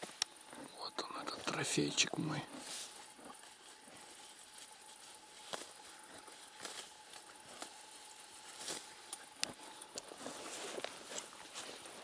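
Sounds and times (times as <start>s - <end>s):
footsteps through grass: 2.2s - 12.0s.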